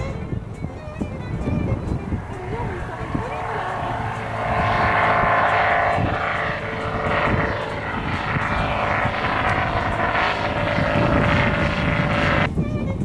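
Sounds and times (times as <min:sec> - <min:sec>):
propeller aircraft engine droning: 0:00.0 - 0:13.0.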